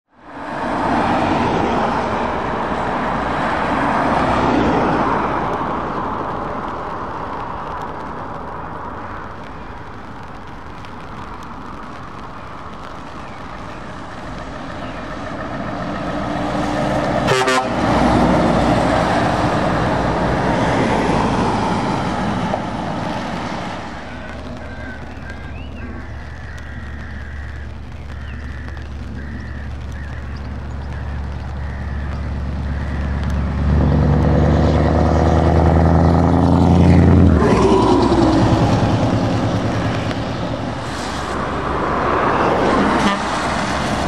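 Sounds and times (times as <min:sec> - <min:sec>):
truck engines passing: 0:00.1 - 0:08.9, 0:12.6 - 0:44.0
tyres hissing on wet road: 0:00.2 - 0:44.0
short horn toot: 0:17.3 - 0:17.8.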